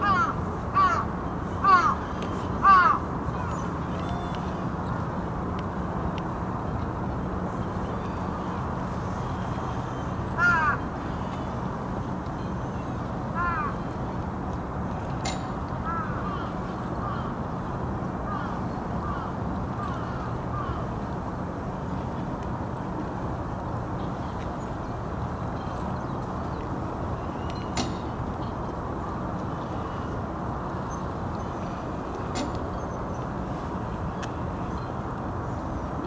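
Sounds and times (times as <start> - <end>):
crows cawing: 0.0 - 1.0, 1.6 - 2.0, 2.6 - 3.0, 10.4 - 10.8, 13.4 - 13.8, 18.3 - 20.9
low hum and rushing noise: 0.0 - 36.0.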